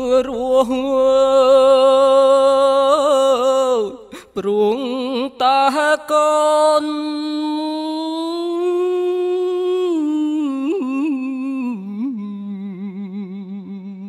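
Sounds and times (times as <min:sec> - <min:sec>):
man chanting: 0:00.0 - 0:12.2.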